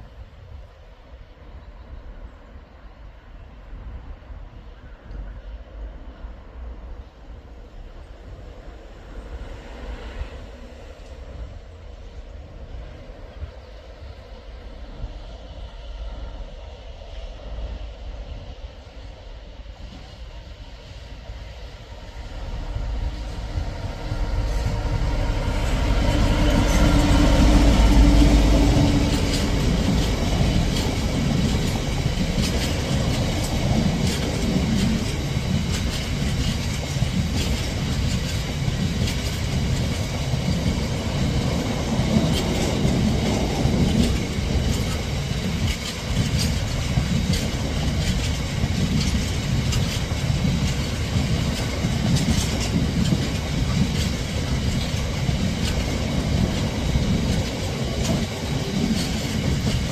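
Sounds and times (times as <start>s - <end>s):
diesel locomotive engine: 0.0s - 59.9s
wheels clacking on rails: 21.3s - 59.9s.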